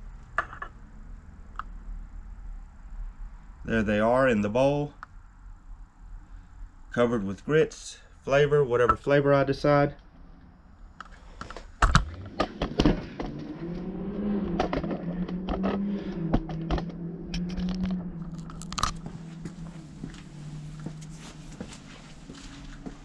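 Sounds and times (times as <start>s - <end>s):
low wavering hum: 10.0s - 23.0s.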